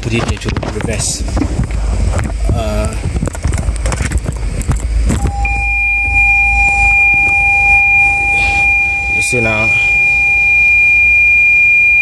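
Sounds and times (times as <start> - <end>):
two-pitch warning buzzer: 5.2 - 12.0.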